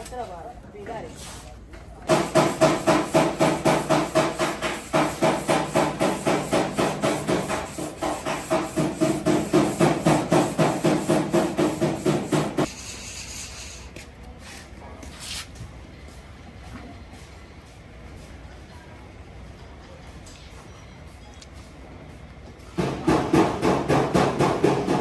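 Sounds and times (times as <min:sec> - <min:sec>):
sandpaper rasping on plastic: 0:02.1 - 0:15.5.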